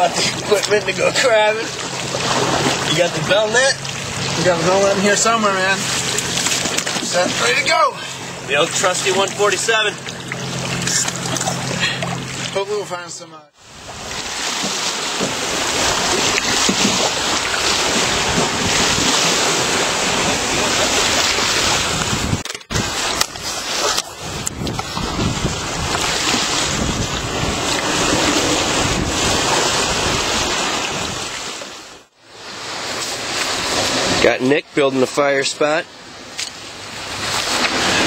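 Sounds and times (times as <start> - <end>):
ocean waves: 0.0 - 38.0
wind blowing across microphone: 15.3 - 31.4.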